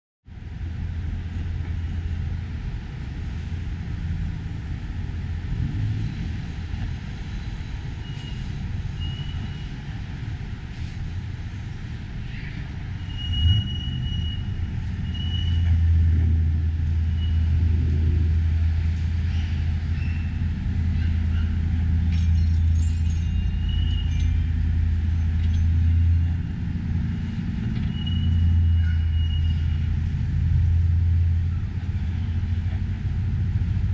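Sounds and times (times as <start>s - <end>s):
traffic rumble: 0.3s - 33.9s
faint high squeaks: 22.2s - 24.6s, 27.8s - 29.9s.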